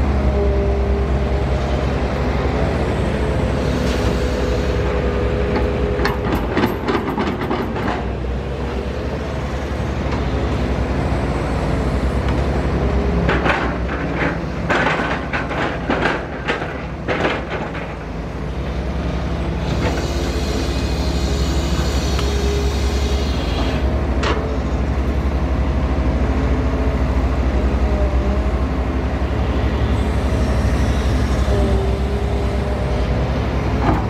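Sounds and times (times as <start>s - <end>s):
excavator diesel engine running: 0.0s - 34.0s.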